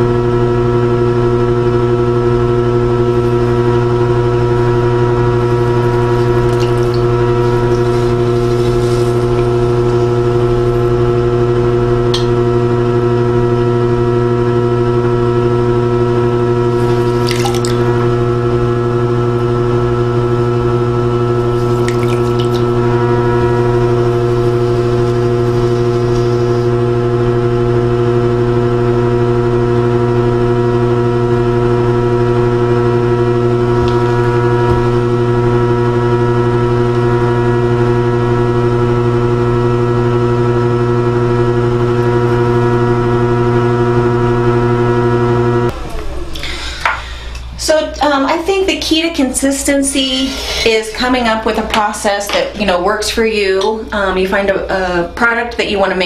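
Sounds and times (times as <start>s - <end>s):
pottery wheel motor hum: 0.0s - 56.0s
wet hands working clay: 5.4s - 10.9s, 16.8s - 18.0s, 21.4s - 22.8s.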